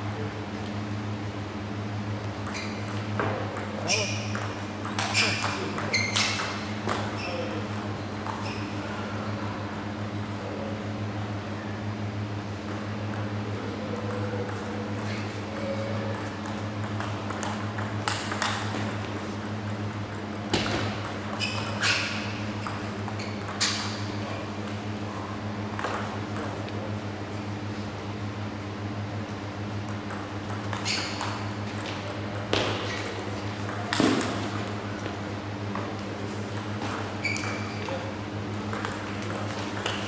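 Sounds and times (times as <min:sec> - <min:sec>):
steady low hum: 0:00.0 - 0:40.0
table tennis ball clicking: 0:04.3 - 0:07.1, 0:16.1 - 0:19.0, 0:38.6 - 0:40.0.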